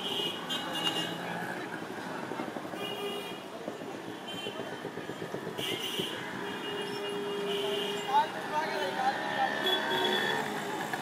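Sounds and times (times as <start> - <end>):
voices of passers-by: 0.0 - 11.0
passing engines hum: 3.4 - 11.0.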